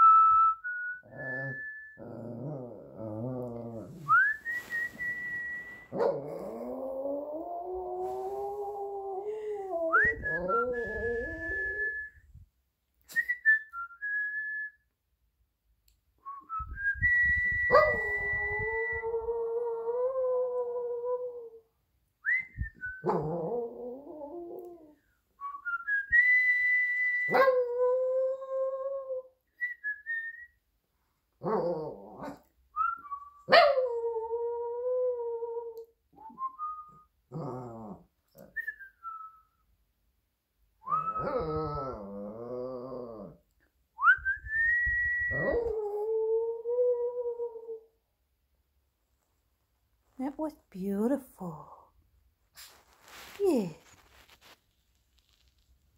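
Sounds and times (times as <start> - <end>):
person whistling: 0.0 - 2.1, 4.0 - 6.0, 9.9 - 12.3, 13.1 - 14.9, 16.2 - 19.0, 25.4 - 27.3, 44.0 - 45.6.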